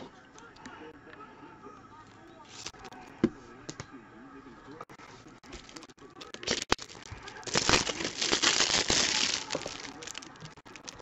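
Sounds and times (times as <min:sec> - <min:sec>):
cellophane tearing and crinkling: 0:05.5 - 0:11.0.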